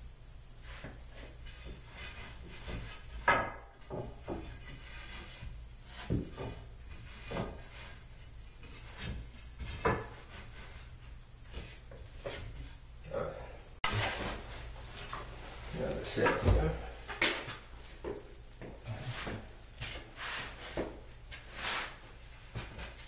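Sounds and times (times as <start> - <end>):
wooden knocks and clatters: 1.5 - 5.2.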